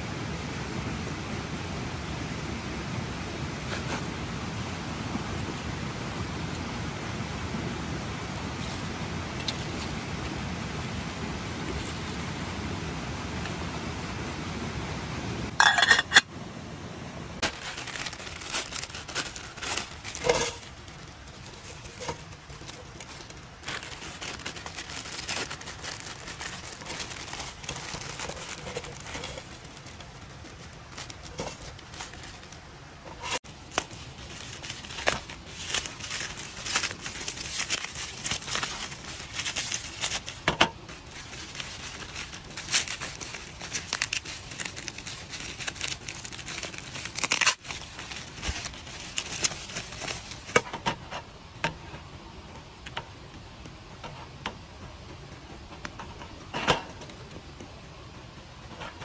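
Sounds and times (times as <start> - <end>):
campfire hissing: 0.0 - 16.0, 16.6 - 50.8
plastic wrappers crinkling: 17.4 - 51.3.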